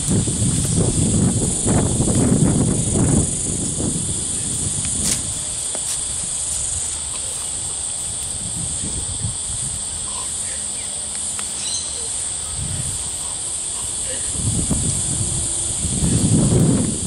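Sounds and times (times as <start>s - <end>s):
insects chorus: 0.0s - 17.0s
faint bird chirps: 11.6s - 12.3s.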